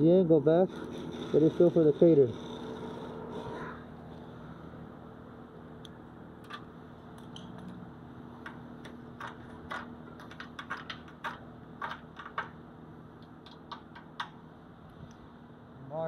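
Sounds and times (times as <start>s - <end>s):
steady low hum: 0.0s - 16.0s
cooling weld clicking: 8.4s - 12.6s, 13.2s - 14.4s.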